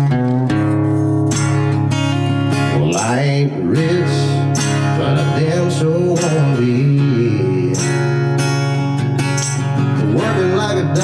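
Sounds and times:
acoustic guitar strumming: 0.0s - 11.0s
wordless voice singing: 2.6s - 8.2s, 9.9s - 11.0s.

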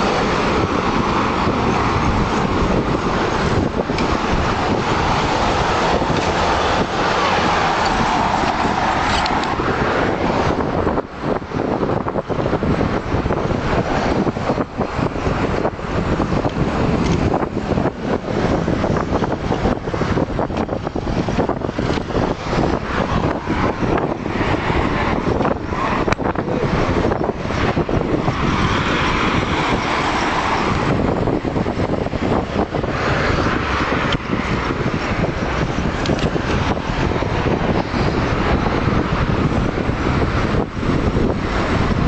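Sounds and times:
city street traffic: 0.0s - 42.0s
vehicle passing close: 0.0s - 42.0s
wind rumbling on microphone: 0.0s - 42.0s.

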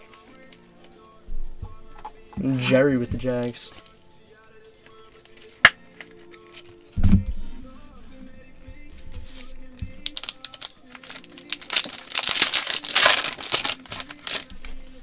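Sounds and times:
background music: 0.0s - 15.0s
foil wrapper tearing and crinkling: 10.0s - 14.8s.

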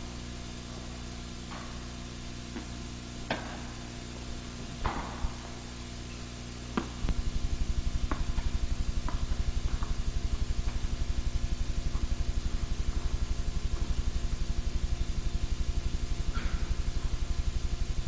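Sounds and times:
steady low hum: 0.0s - 18.0s
tennis balls hit and bouncing: 6.7s - 7.2s, 8.0s - 10.0s
fast low pulsing: 7.0s - 18.0s.

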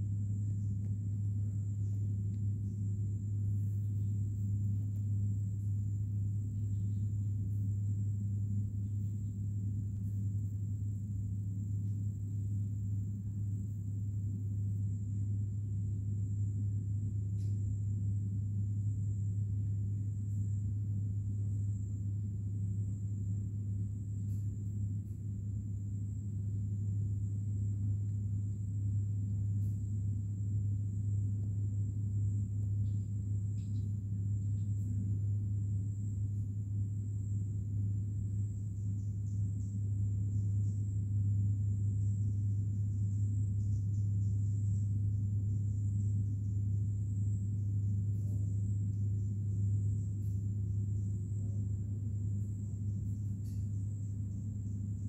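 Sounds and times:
faint high-pitched whine: 0.0s - 55.0s
steady low hum: 0.0s - 55.0s
faint ticks: 32.8s - 35.0s.

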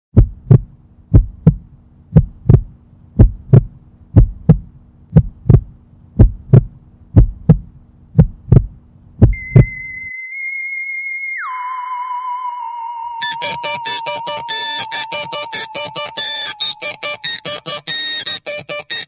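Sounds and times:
heartbeat thumps: 0.2s - 9.8s
steady low hum: 0.2s - 10.0s
high held synthesizer tone: 9.4s - 19.0s.

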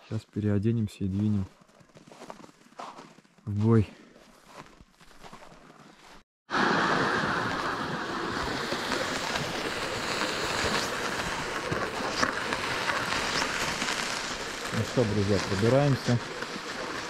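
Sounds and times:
footsteps in snow: 1.0s - 6.2s, 7.5s - 17.0s
sled dragged over snow: 4.4s - 17.0s.

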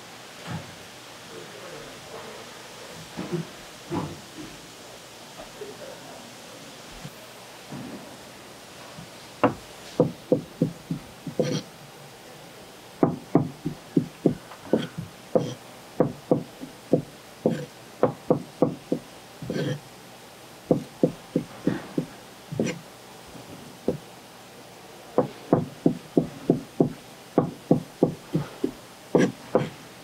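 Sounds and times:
knife chopping on plastic board: 9.4s - 11.6s, 13.0s - 19.8s, 20.7s - 22.8s, 25.2s - 29.8s.

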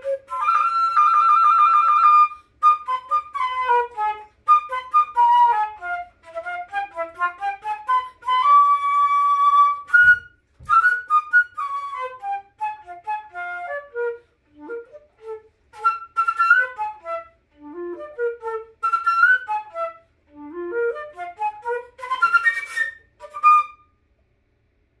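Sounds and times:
flute playing quick notes: 0.0s - 23.9s
flute player breathing: 2.3s - 2.6s, 14.1s - 14.6s.

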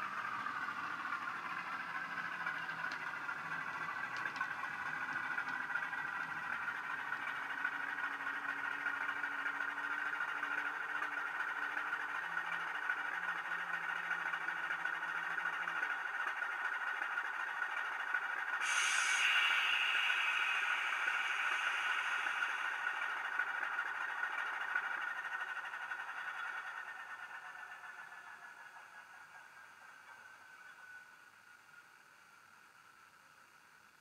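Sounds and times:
diesel engine idling through speaker: 0.0s - 34.0s
sudden hiss: 18.6s - 24.3s.

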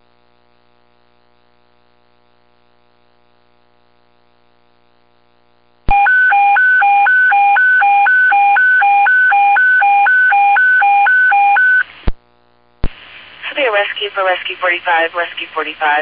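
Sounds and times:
alert tone cycling through pitches: 5.9s - 11.8s
faint radio hum: 12.8s - 16.0s.

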